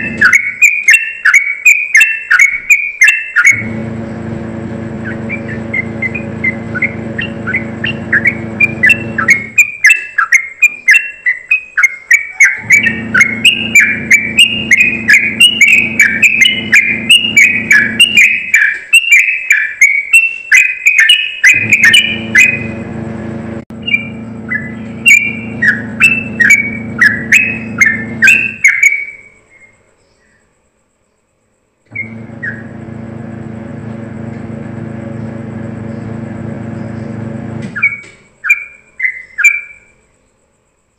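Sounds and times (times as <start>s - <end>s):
steady low hum: 0.0s - 0.3s, 3.5s - 9.6s, 12.6s - 18.2s, 21.5s - 28.6s, 31.9s - 38.0s
bird singing rapid whistled notes: 0.0s - 4.3s, 4.9s - 22.8s, 23.7s - 30.4s, 32.0s - 32.8s, 35.2s - 40.0s.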